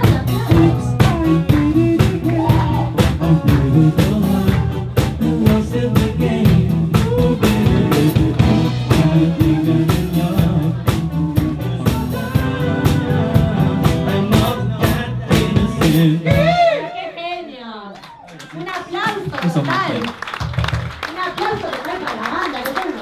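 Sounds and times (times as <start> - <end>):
man singing into microphone: 0.0 - 16.9
drum kit beat: 0.0 - 17.0
electric guitar: 0.0 - 17.0.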